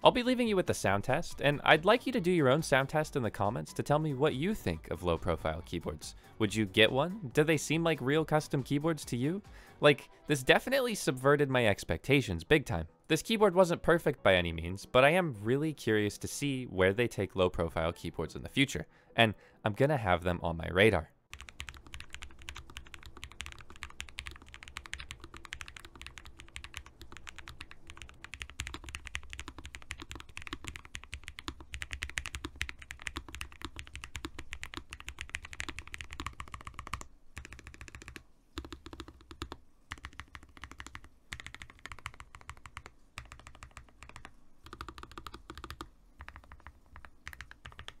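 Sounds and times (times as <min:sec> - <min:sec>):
mechanical keyboard typing: 0:21.3 - 0:48.0.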